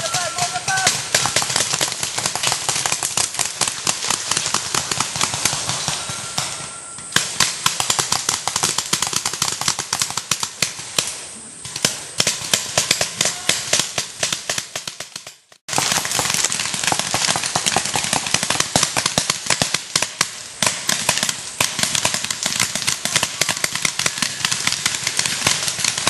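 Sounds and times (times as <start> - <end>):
game guns firing rapid shots: 0.1 - 6.4.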